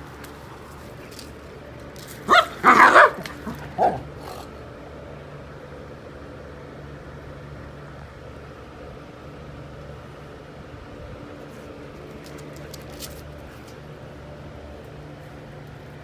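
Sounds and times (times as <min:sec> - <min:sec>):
dog barking: 0:02.3 - 0:04.0.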